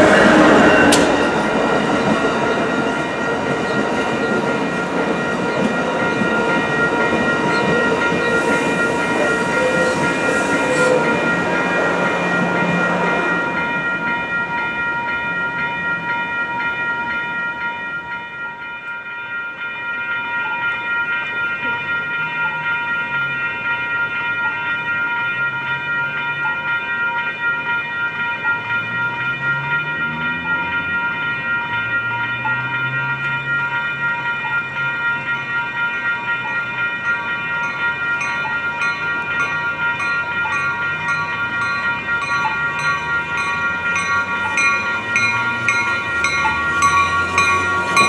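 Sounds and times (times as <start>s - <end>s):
train wheels clattering on rails: 0.0s - 15.9s, 34.3s - 48.0s
crossing bells ringing: 0.0s - 48.0s.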